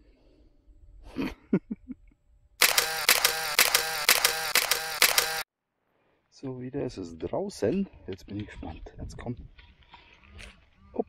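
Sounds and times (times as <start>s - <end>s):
camera shutter clicking rapidly: 2.6s - 5.4s
small clicks: 2.6s - 5.4s.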